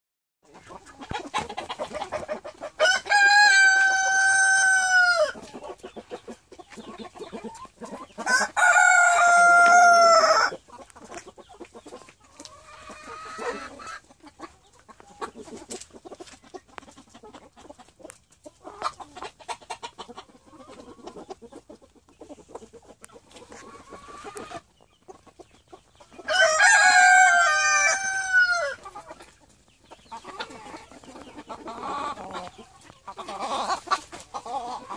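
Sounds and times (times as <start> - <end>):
chickens clucking softly: 0.4 - 34.9
roosters crowing: 2.7 - 5.4, 8.2 - 10.6, 26.2 - 28.9.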